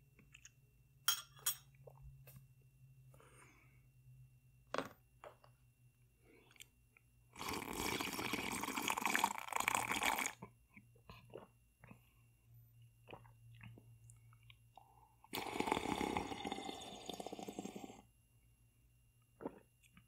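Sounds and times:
person drinking from a bowl: 0:15.3 - 0:18.0.

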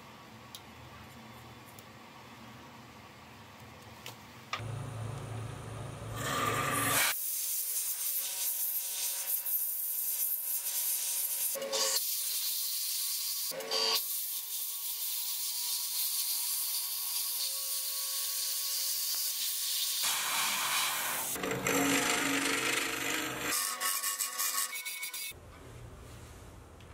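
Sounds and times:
wood lathe motor hum: 0:21.3 - 0:23.7.

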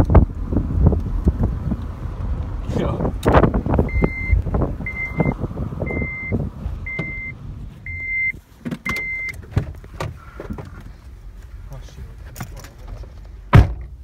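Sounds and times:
car warning chime beeping: 0:03.9 - 0:09.4
knocks and rustling: 0:08.5 - 0:11.5, 0:12.1 - 0:14.0.

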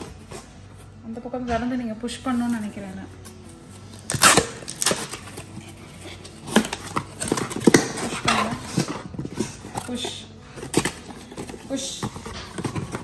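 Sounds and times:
cardboard flaps scraping and rustling: 0:10.6 - 0:13.0.

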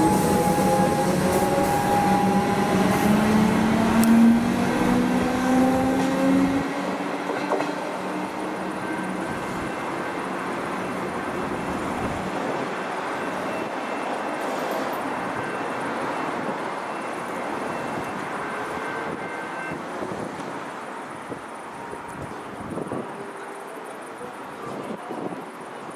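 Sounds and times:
electric train motor whine: 0:00.0 - 0:07.1
train wheel and rail noise: 0:00.0 - 0:25.9.

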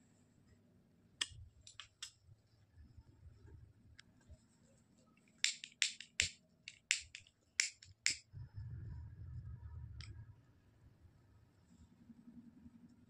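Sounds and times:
lighter clicking: 0:05.4 - 0:08.2
low rumble: 0:08.3 - 0:11.2.

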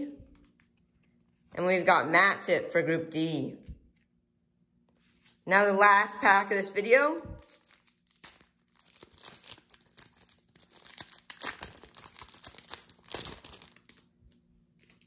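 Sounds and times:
wrapper tearing and crinkling: 0:06.7 - 0:14.1, 0:14.8 - 0:15.0.

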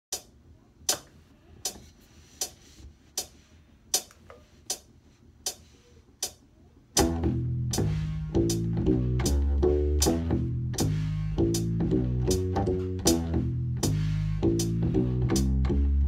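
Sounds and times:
metronome clicking: 0:00.1 - 0:00.3, 0:00.9 - 0:06.4, 0:07.0 - 0:15.9
bass ukulele plucked notes: 0:07.0 - 0:16.0.

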